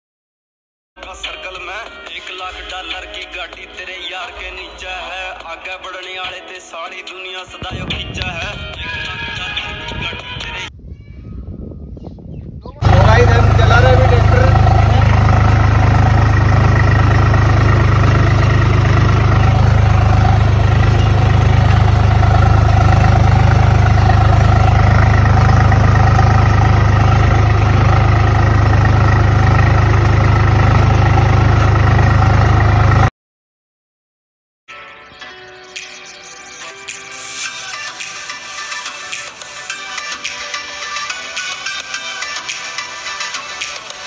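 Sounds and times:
tractor diesel engine droning: 12.8 - 33.1.

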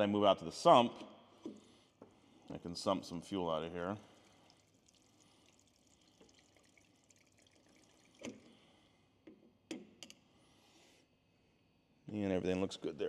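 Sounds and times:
faint trickle of fuel draining: 2.2 - 9.0.

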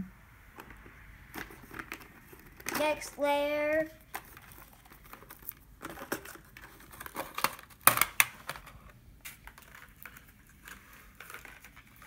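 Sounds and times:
plastic packaging crinkling: 4.0 - 12.0.

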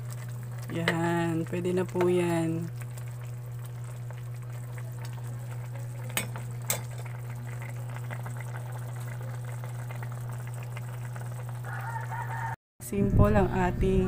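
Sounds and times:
soup bubbling at a boil: 0.0 - 12.5
metal ladle knocking pot: 6.2 - 7.0.

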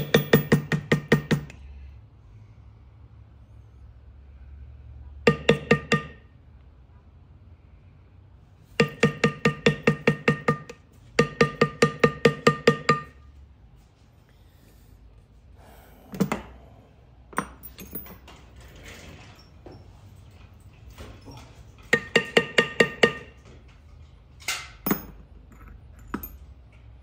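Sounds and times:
mallet striking metal stamp: 0.0 - 1.5, 5.3 - 6.2, 8.8 - 13.1
light knocks and clinks: 17.3 - 27.0.

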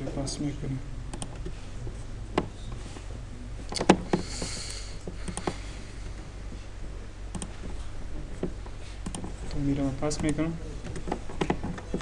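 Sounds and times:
low electrical hum: 0.0 - 12.0
mouse and keyboard clicks: 7.3 - 7.6, 8.4 - 9.3.

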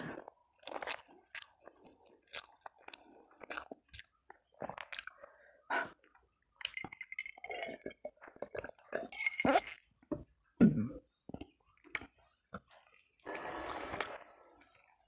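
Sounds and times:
wet chewing and mouth smacks: 0.2 - 5.2, 11.2 - 15.0
person gulping water: 5.9 - 9.9, 10.5 - 14.9
ice clinking against glass: 6.6 - 8.1, 9.1 - 9.7.

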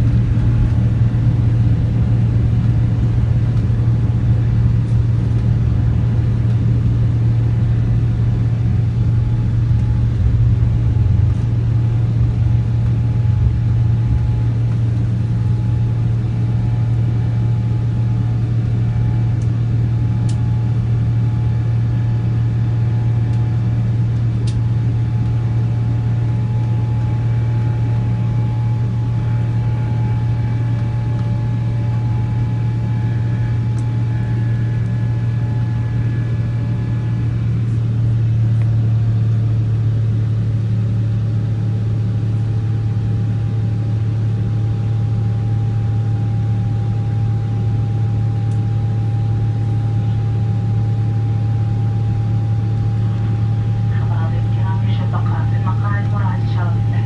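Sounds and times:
jet engines roaring in cabin: 0.0 - 57.0
faint steady tones: 52.8 - 57.0.

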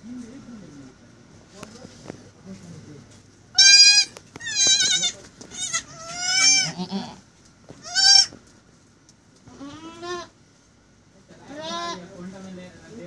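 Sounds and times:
goat kids bleating: 3.5 - 8.4, 9.5 - 10.4, 11.5 - 12.0.

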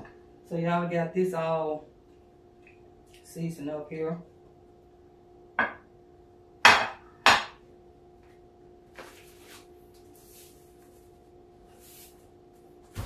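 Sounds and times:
faint steady hum: 0.0 - 13.0
cookware knocking: 5.6 - 5.8, 6.7 - 7.6.

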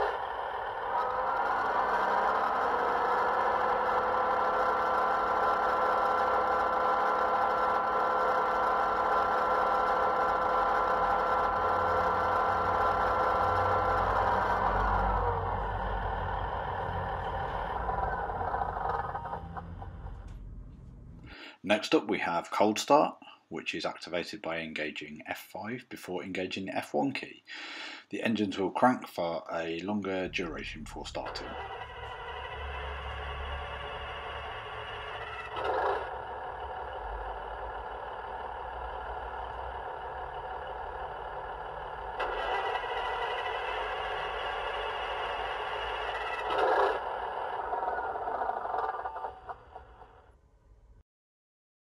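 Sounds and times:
diesel engine rumble from small speaker: 0.0 - 21.5, 30.2 - 49.2.

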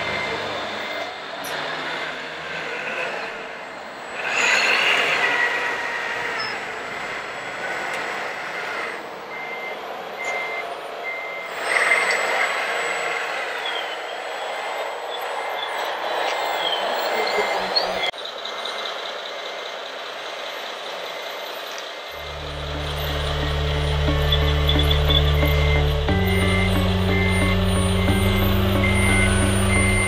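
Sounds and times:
electronic reversing beeper: 22.2 - 30.0.

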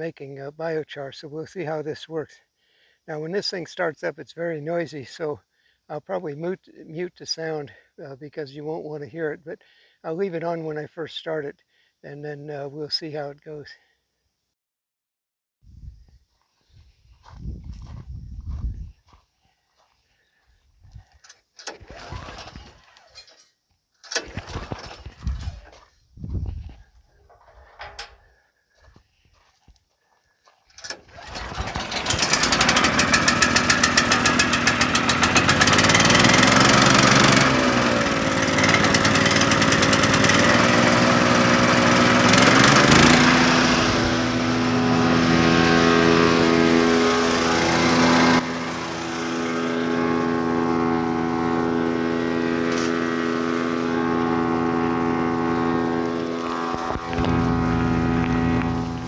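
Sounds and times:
gas engine starting and running: 21.2 - 23.3, 24.0 - 25.8, 27.3 - 28.3, 30.7 - 59.0.

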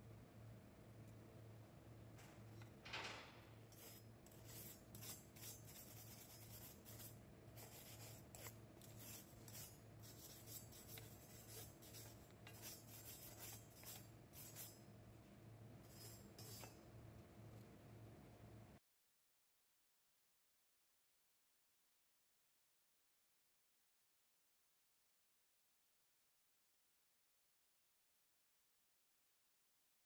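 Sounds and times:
faint low hum: 0.0 - 18.8.

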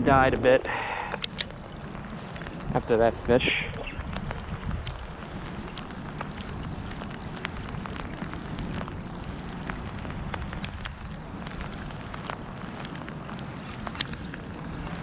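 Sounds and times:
steady rain falling: 0.0 - 15.0.

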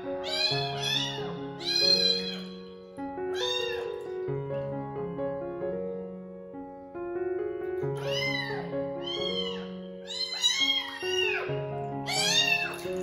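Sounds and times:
soft piano music: 0.0 - 13.0
kitten meowing: 0.2 - 2.7, 3.3 - 4.2, 8.0 - 13.0.

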